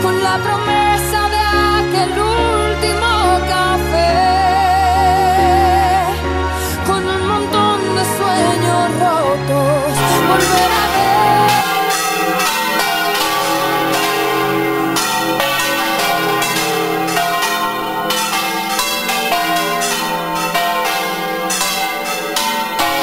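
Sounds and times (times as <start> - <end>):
church bells pealing: 10.0 - 23.0.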